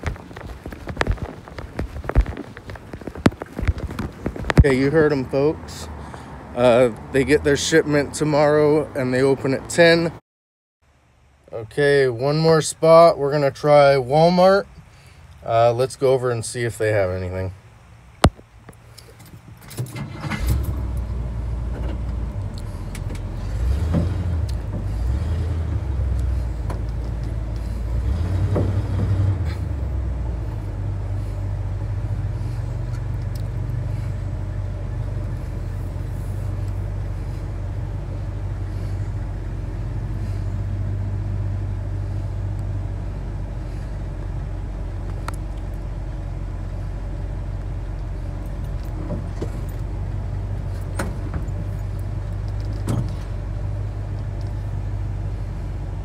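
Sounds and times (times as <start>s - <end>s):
truck engine rumbling: 0.0s - 10.2s, 10.9s - 56.0s
truck engine starting: 18.9s - 56.0s.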